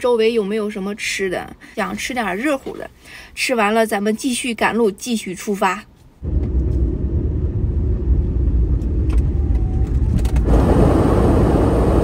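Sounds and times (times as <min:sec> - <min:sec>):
engine and road rumble: 0:05.9 - 0:12.0.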